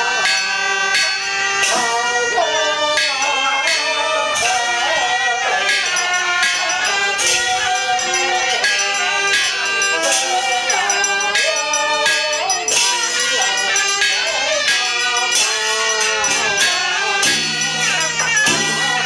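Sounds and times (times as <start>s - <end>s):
hand bell jingling: 0.0s - 19.0s
reedy ritual music: 0.0s - 19.0s.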